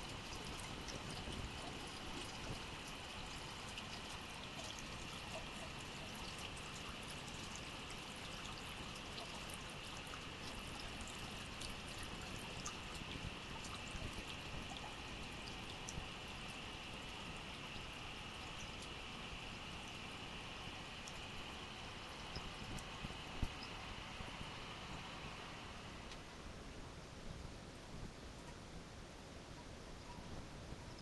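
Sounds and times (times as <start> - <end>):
faucet water running: 0.0 - 23.8.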